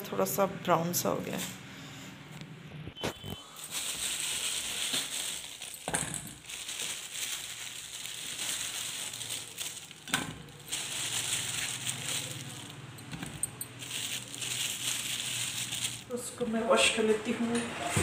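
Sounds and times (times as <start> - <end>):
plastic bag crinkling: 3.1 - 16.5.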